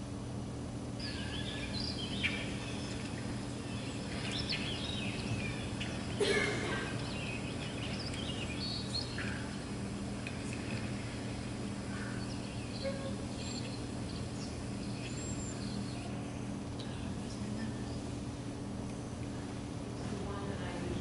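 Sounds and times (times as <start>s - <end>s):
steady low hum: 0.0s - 21.0s
bird-like chirps and squeaky calls: 1.0s - 9.8s, 11.9s - 16.2s.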